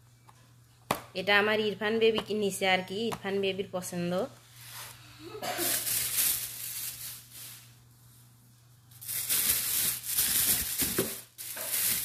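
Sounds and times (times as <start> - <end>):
plastic bag rustling and crinkling: 5.6 - 7.8, 8.9 - 12.0.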